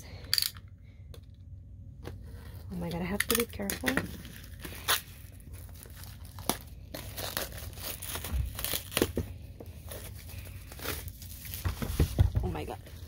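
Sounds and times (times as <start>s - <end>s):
plastic wrap crinkling and tearing: 3.4s - 13.0s.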